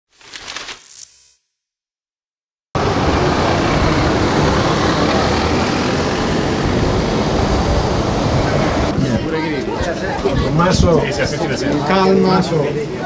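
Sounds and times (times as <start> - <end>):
street traffic noise: 2.8 - 13.0.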